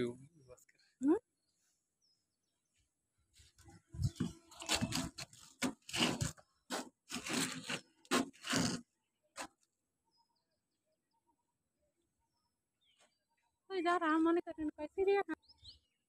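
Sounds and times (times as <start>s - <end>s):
rustling and scraping: 3.4s - 8.8s.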